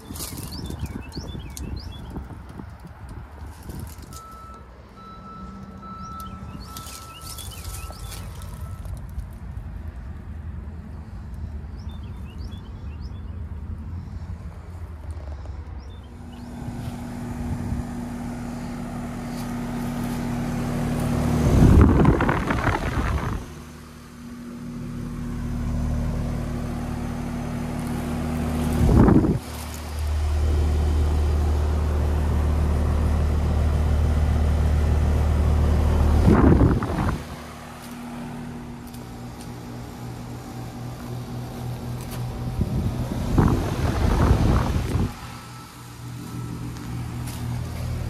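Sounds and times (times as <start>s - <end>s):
compressor hum: 10.7s - 48.0s
condenser fan whirring: 35.7s - 48.0s.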